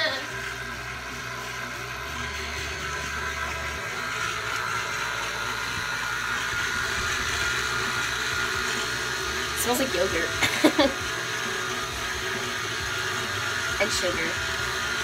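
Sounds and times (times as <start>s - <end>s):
stand mixer motor whir: 0.0s - 15.0s.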